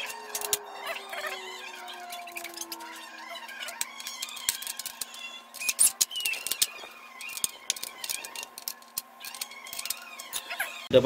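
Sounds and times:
metal and plastic parts clicking: 0:00.0 - 0:10.9.

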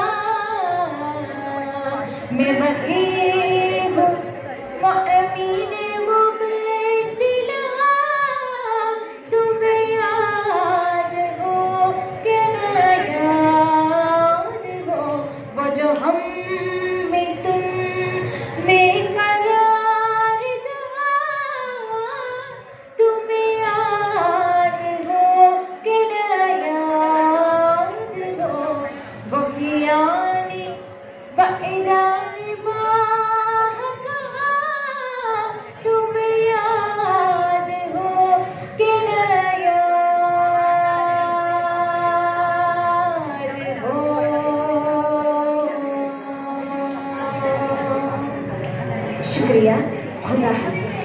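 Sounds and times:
girl singing: 0:00.0 - 0:30.8, 0:31.4 - 0:48.2
singer breathing: 0:18.2 - 0:18.6.

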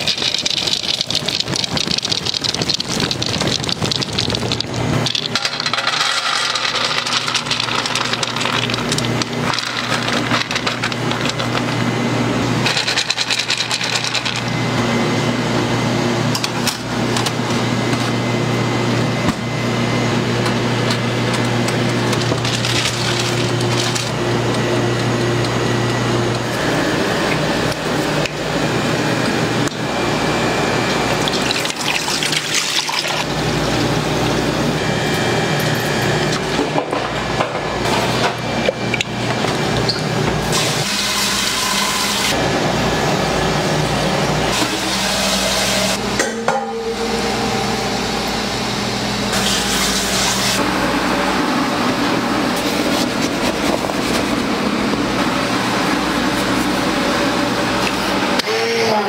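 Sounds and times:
liquid pouring: 0:00.0 - 0:11.8, 0:30.9 - 0:33.4
low machine hum: 0:00.0 - 0:59.0.

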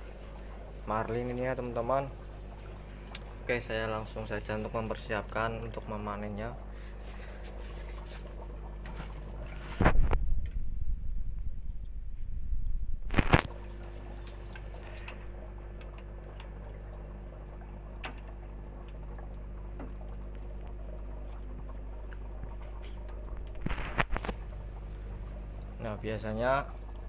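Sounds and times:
aquarium air pump humming: 0:00.0 - 0:27.0.

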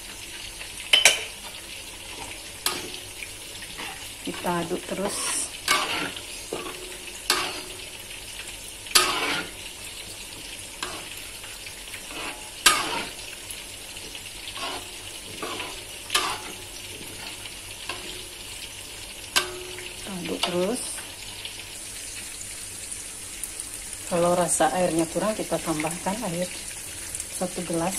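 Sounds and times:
spatula scraping a metal wok: 0:03.6 - 0:08.0, 0:08.8 - 0:18.4.

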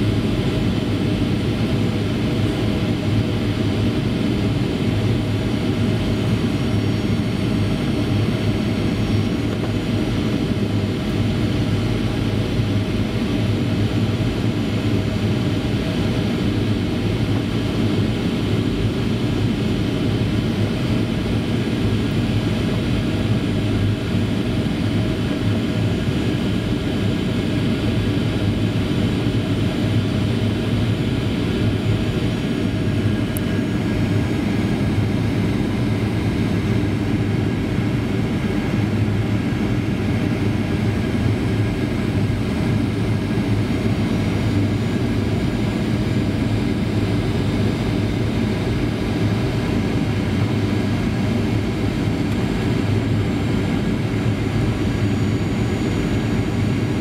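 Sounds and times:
airliner cabin drone: 0:00.0 - 0:57.0.

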